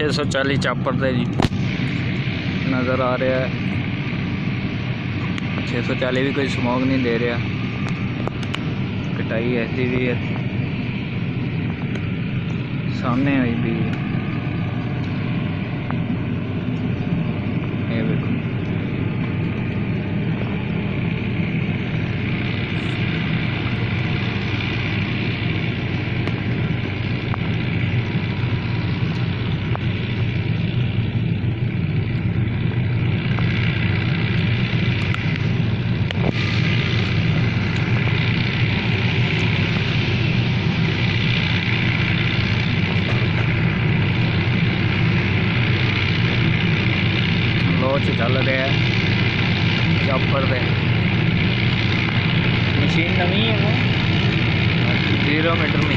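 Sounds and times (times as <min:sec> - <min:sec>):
tractor diesel engine: 0:00.0 - 0:55.9.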